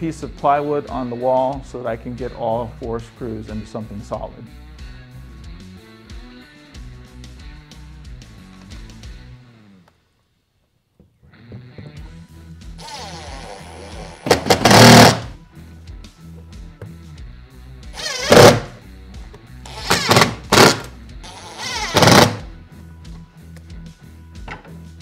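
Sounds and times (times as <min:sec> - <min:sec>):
background music: 0:00.0 - 0:09.9, 0:11.2 - 0:25.0
cordless drill driving screws: 0:14.2 - 0:15.3, 0:18.0 - 0:18.7, 0:19.7 - 0:22.4.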